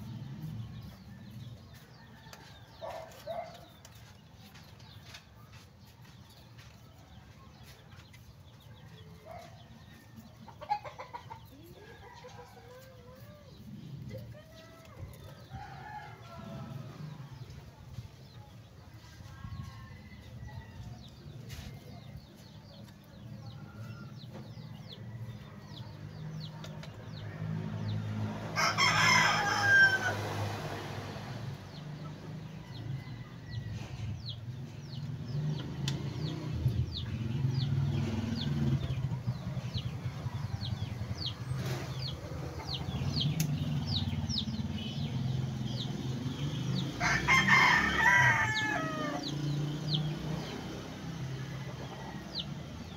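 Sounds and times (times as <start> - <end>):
rooster crowing: 28.5 - 30.6, 46.9 - 49.5.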